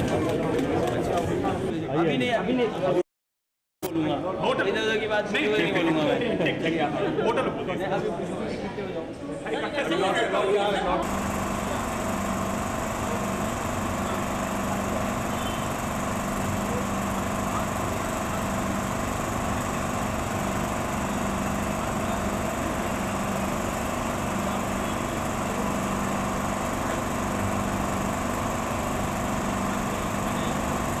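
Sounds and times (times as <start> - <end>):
machine drone: 11.0 - 31.0.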